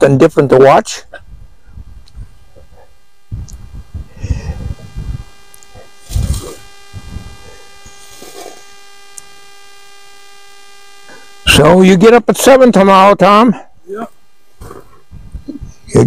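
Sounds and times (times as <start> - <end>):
electrical hum and buzz: 0.0 - 16.0
wind rumbling on microphone: 1.2 - 8.0, 14.6 - 16.0
faint ticks: 5.4 - 5.8, 9.1 - 9.4.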